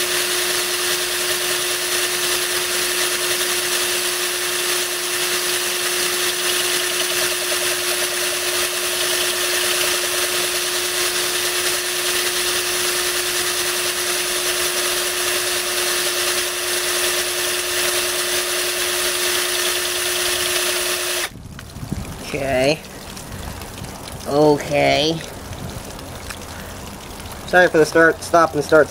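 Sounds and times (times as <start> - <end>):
electric drill grinding glass: 0.0 - 21.3
water pouring: 0.0 - 28.9.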